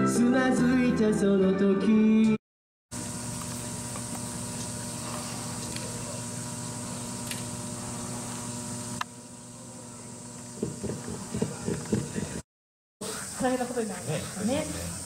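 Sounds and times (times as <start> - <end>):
electrical hum with hiss: 3.0 - 12.4.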